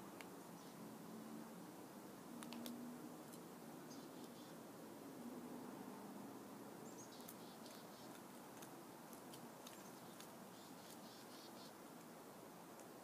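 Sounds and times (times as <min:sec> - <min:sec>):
chickadee chirping: 0:06.9 - 0:08.2, 0:09.8 - 0:11.8.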